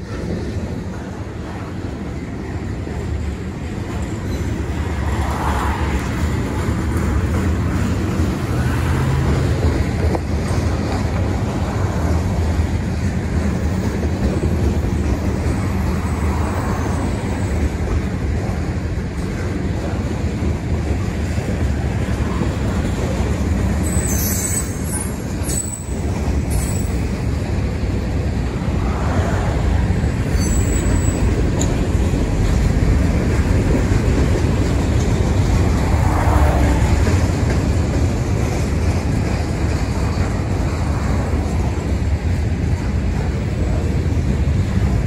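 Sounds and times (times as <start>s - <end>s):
freight train rumbling past: 0.0s - 45.0s.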